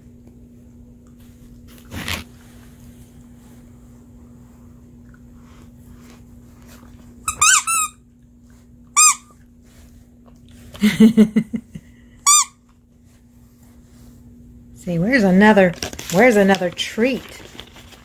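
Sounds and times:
squeaky toy squeaks: 0:07.3 - 0:08.0, 0:12.3 - 0:12.6.

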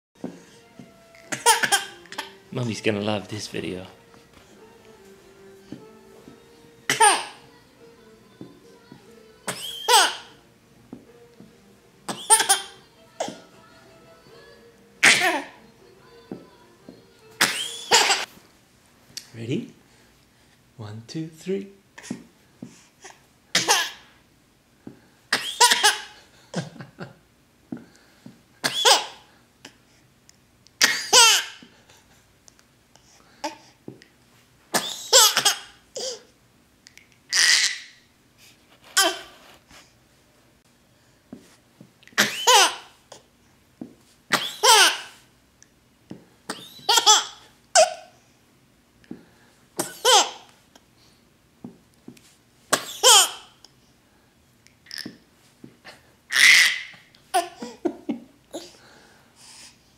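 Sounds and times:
baby laughing: 0:01.3 - 0:02.4, 0:06.9 - 0:07.4, 0:09.5 - 0:10.3, 0:12.1 - 0:13.4, 0:15.0 - 0:15.6, 0:17.4 - 0:18.3, 0:25.4 - 0:26.7, 0:28.7 - 0:29.2, 0:30.9 - 0:31.6, 0:34.8 - 0:36.2, 0:37.3 - 0:38.0, 0:39.0 - 0:39.3, 0:42.2 - 0:42.9, 0:44.4 - 0:45.2, 0:46.5 - 0:48.1, 0:50.0 - 0:50.5, 0:53.0 - 0:53.5, 0:56.3 - 0:58.7.

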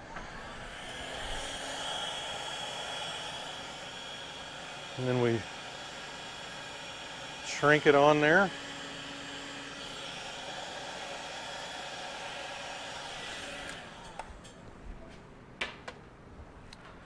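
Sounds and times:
heat gun blowing: 0:00.0 - 0:14.6.

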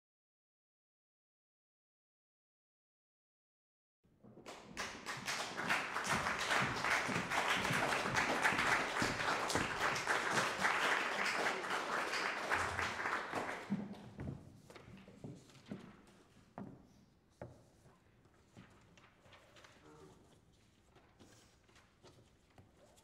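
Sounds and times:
scattered claps and knocks: 0:04.2 - 0:14.9
audience applauding: 0:04.4 - 0:14.1.

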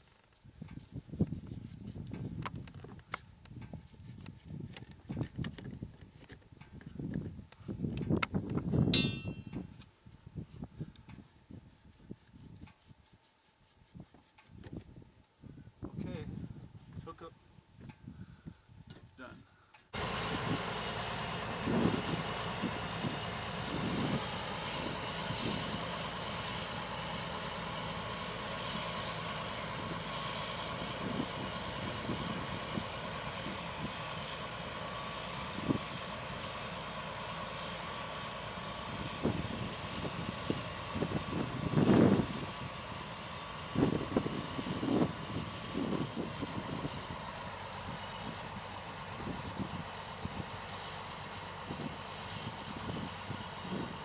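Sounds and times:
tractor diesel engine under load: 0:19.9 - 0:54.0.

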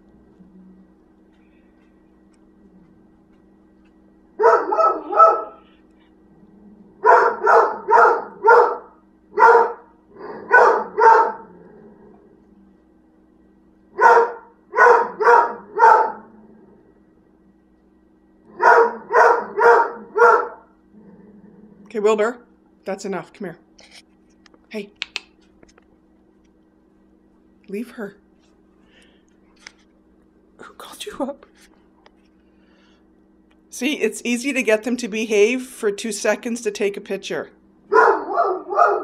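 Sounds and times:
faint steady hum: 0:00.0 - 0:39.0
dog barking: 0:04.4 - 0:05.7, 0:07.0 - 0:11.5, 0:14.0 - 0:16.3, 0:18.5 - 0:20.7, 0:37.9 - 0:39.0.

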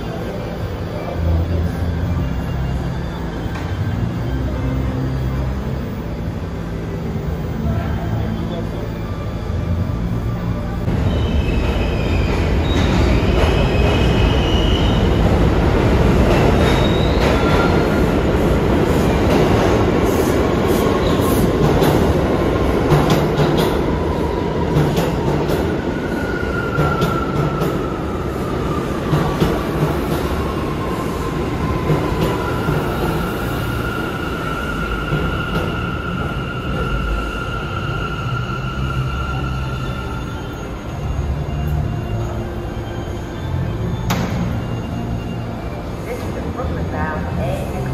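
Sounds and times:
train wheels rumbling on rails: 0:10.8 - 0:47.9
high wheel squeals: 0:16.4 - 0:18.3.

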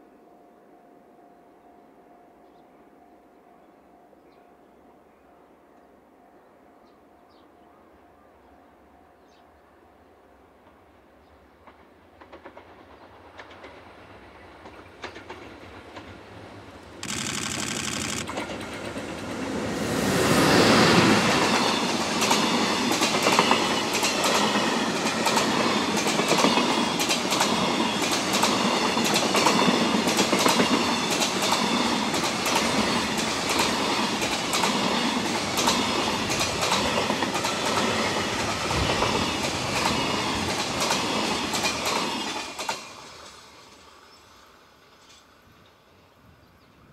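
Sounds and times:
freight train rumbling past: 0:10.6 - 0:17.0, 0:18.3 - 0:45.5.

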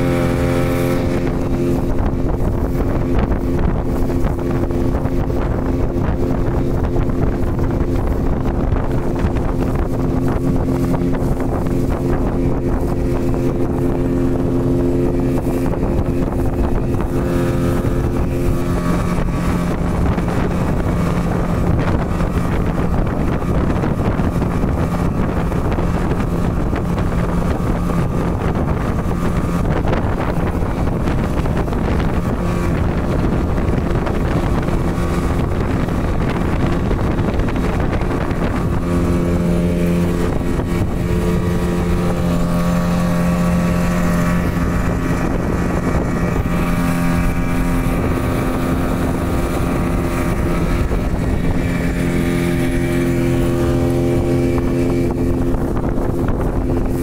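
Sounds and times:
motorboat engine: 0:00.0 - 0:57.0
wind buffeting microphone: 0:00.0 - 0:57.0.

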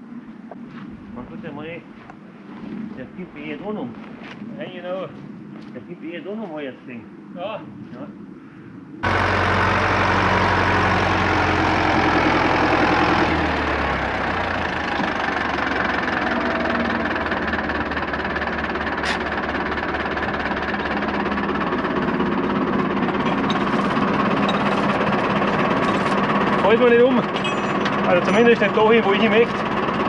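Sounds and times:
tractor diesel engine running: 0:09.0 - 0:30.0.

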